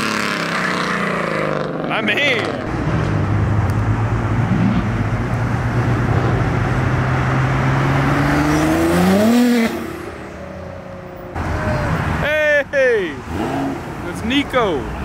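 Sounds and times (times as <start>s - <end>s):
car engine accelerating hard: 0.0s - 10.1s
exhaust and tyre noise: 0.0s - 15.0s
quieter traffic: 0.0s - 15.0s.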